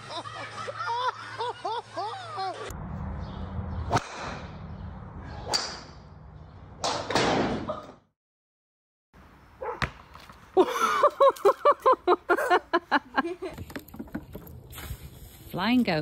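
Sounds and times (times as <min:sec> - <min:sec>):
loud laughter: 0:00.0 - 0:02.7.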